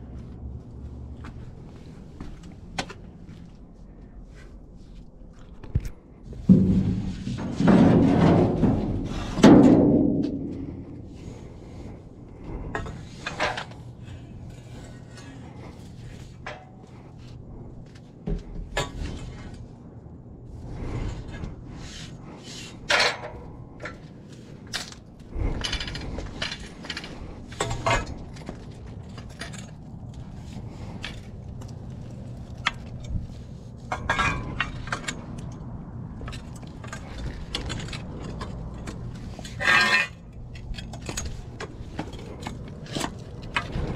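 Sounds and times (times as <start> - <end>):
steady low hum: 0.0 - 43.9
scrap items clinking and clanking: 20.9 - 35.5, 36.2 - 43.9.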